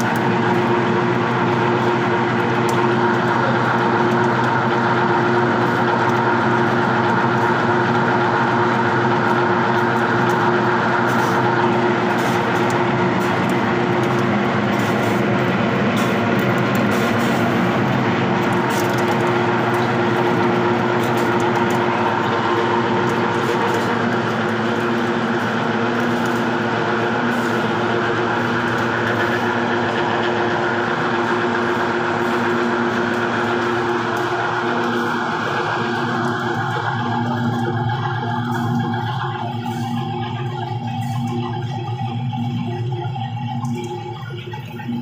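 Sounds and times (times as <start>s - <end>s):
oil expeller machine humming: 0.0s - 45.0s.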